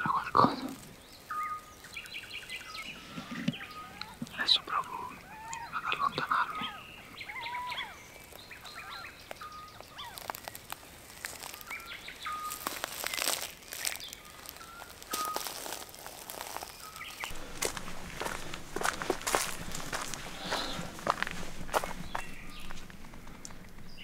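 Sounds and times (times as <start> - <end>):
songbirds singing: 0.0 - 24.0
flat bird whistle: 1.3 - 1.8
footsteps rustling through grass: 7.2 - 24.0.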